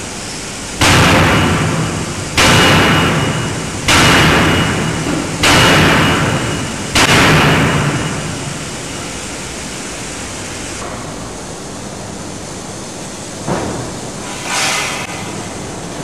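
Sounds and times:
loud forging hammer noise: 0:00.4 - 0:09.2, 0:13.5 - 0:16.0.

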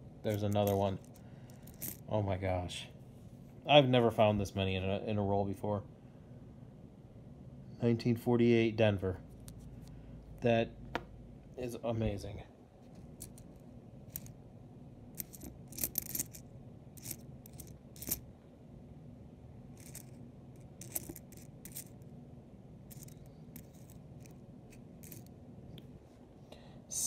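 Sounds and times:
faint low hum: 0:00.0 - 0:27.0
coins clinking: 0:00.3 - 0:02.0, 0:13.1 - 0:14.3, 0:15.2 - 0:16.4, 0:17.0 - 0:18.2, 0:19.8 - 0:22.0, 0:22.9 - 0:25.3.

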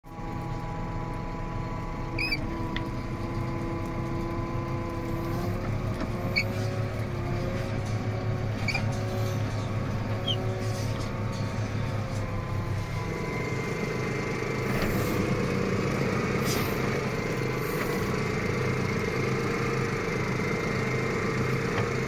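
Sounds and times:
tractor engine running: 0:00.1 - 0:22.0
short high squeaks: 0:02.2 - 0:02.6, 0:06.2 - 0:06.8, 0:08.5 - 0:11.0.

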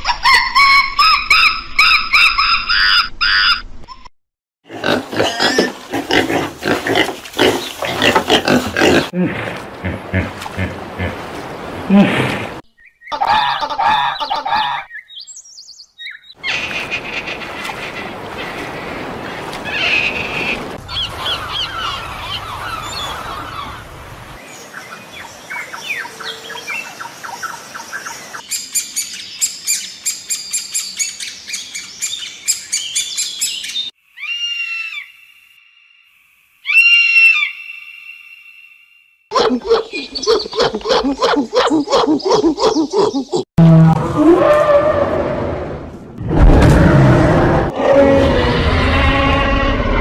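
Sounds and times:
rapid repeated bird chirps: 0:12.7 - 0:17.9, 0:39.4 - 0:43.5
bird chirping and squawking: 0:12.8 - 0:18.7, 0:39.3 - 0:43.5.

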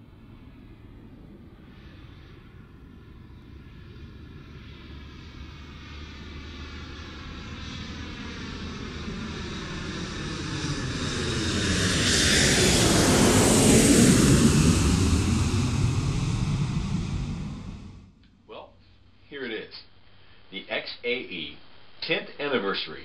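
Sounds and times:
aircraft flying over: 0:00.0 - 0:18.2.

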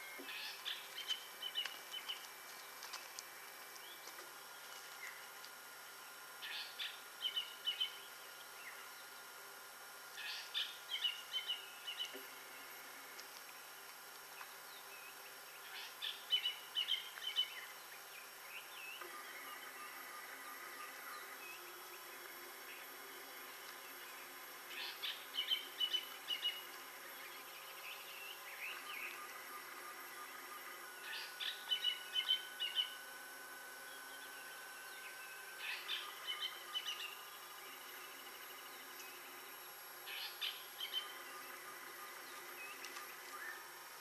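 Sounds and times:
insects droning: 0:00.0 - 0:44.0
bird chirping: 0:00.1 - 0:02.8, 0:10.2 - 0:12.8, 0:14.4 - 0:33.0, 0:33.8 - 0:43.7.

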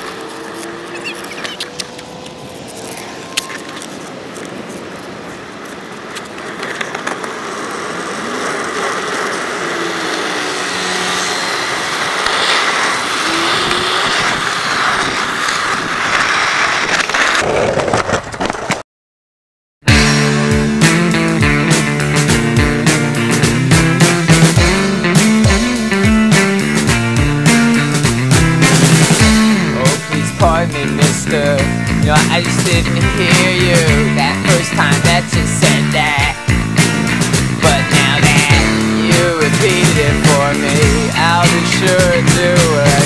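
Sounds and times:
skateboard wheels rolling on asphalt: 0:00.0 - 0:18.8, 0:20.8 - 0:43.0
rock music with guitar: 0:19.9 - 0:43.0.

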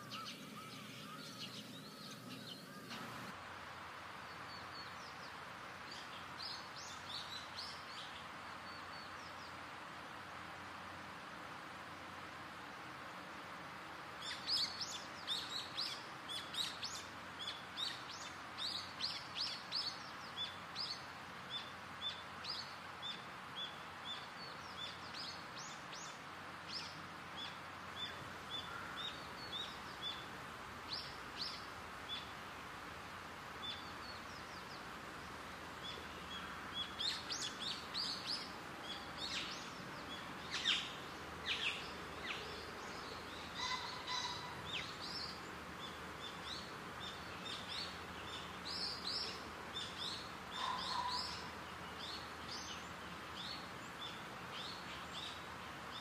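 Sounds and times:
birds chirping: 0:00.0 - 0:03.3, 0:33.6 - 0:56.0
outdoor ambience hiss: 0:00.0 - 0:56.0.

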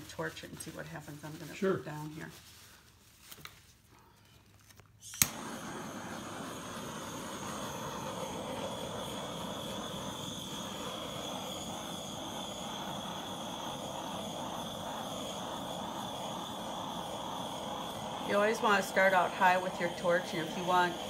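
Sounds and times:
torch flame hissing: 0:05.0 - 0:21.0
torch lighting click: 0:05.0 - 0:21.0
faint high whistle: 0:05.3 - 0:18.2.

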